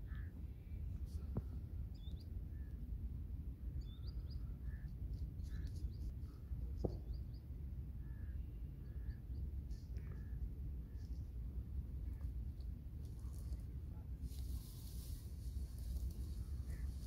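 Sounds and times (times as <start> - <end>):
small birds chirping: 0.0 - 2.9, 3.7 - 11.3, 14.3 - 17.0
steady low rumble: 0.0 - 17.0.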